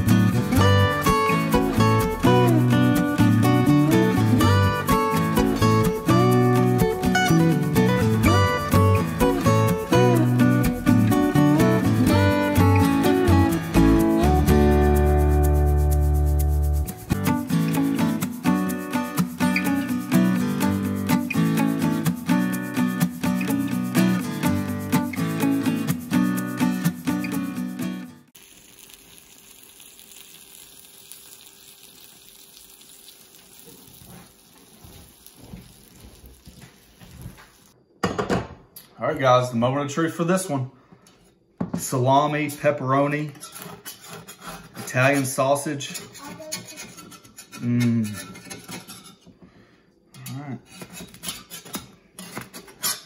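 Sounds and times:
guitar music: 0.0 - 28.3
pizza sizzling in a skillet: 28.2 - 37.8
metal spatula scraping skillet: 43.3 - 49.3, 50.6 - 53.0
short vocal sounds: 47.6 - 48.2.

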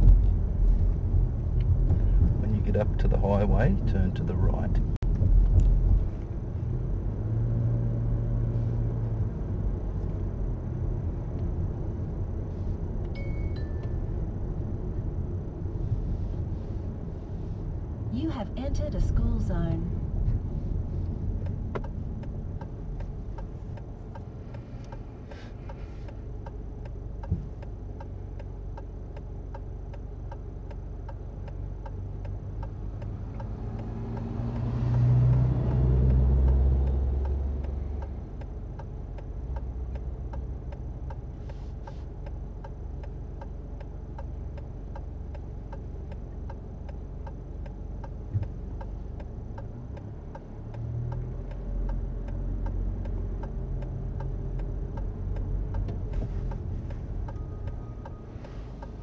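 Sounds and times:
car engine idling: 13.4 - 34.4
turn indicator ticking: 20.2 - 59.0.

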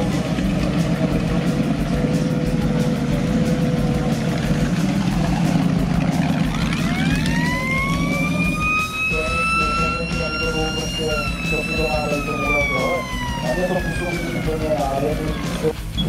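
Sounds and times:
motorcycle engine rumbling: 0.0 - 16.0
rising siren-like whine: 5.0 - 15.8.

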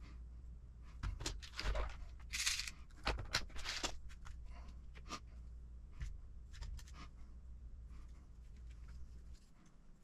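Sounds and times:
plastic parts clicking and tapping: 1.0 - 4.4.

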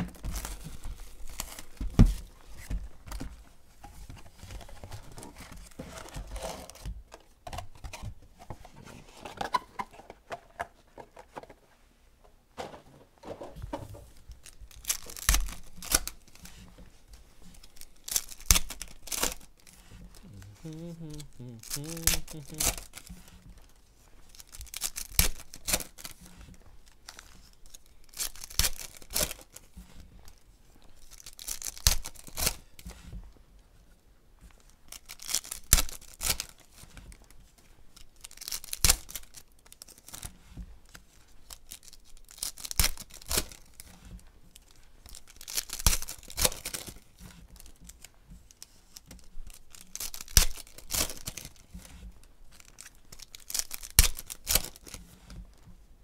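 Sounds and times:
cards and wrappers rustling: 0.0 - 11.7, 12.6 - 33.2, 34.5 - 55.7
foil packs ripping: 14.4 - 16.4, 17.6 - 23.4, 24.3 - 26.4, 27.0 - 29.6, 31.0 - 32.6, 34.9 - 36.8, 38.0 - 40.3, 41.4 - 43.9, 45.0 - 47.0, 49.5 - 51.8, 52.5 - 55.0.

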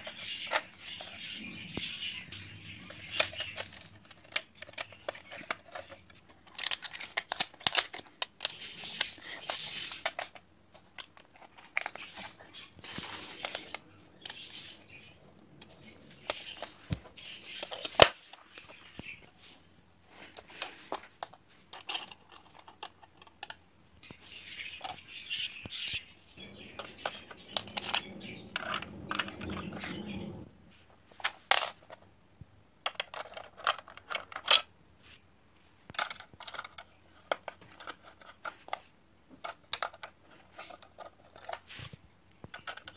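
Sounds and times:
plastic bricks clicking and clattering: 2.8 - 14.7, 20.2 - 23.6, 31.1 - 32.0, 32.8 - 34.7, 35.9 - 41.7, 42.4 - 42.9.

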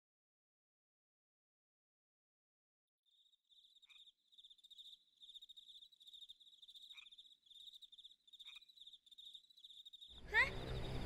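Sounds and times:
crickets trilling: 3.1 - 11.0.

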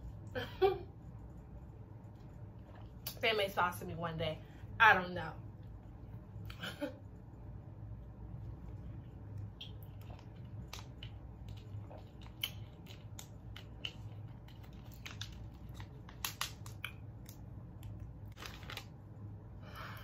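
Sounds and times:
steady low hum: 0.0 - 20.0
person chewing food: 8.6 - 18.0
wet mouth clicks and smacks: 9.4 - 18.0.

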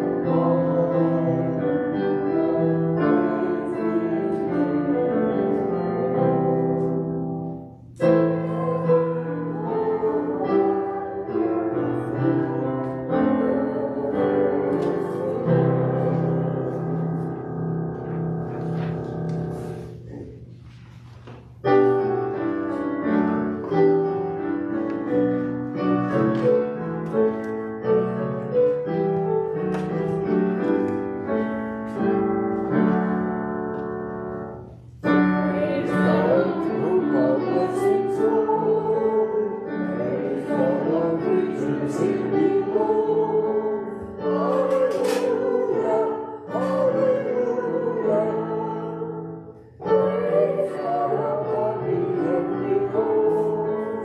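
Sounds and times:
voices singing: 0.0 - 7.0, 8.0 - 17.4, 35.0 - 54.0
keyboard playing chords: 0.0 - 19.9.

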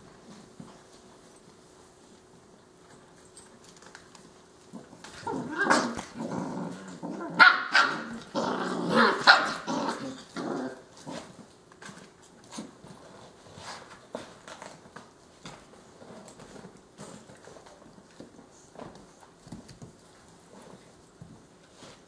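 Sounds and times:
dogs growling: 4.7 - 11.4.

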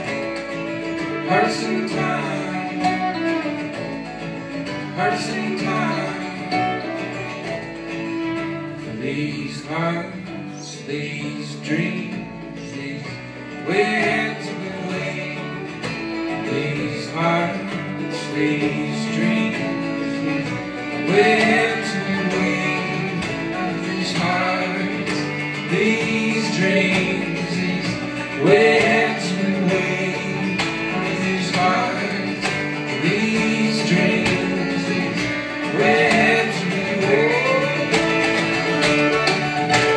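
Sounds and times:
string band playing folk music: 0.0 - 39.9.

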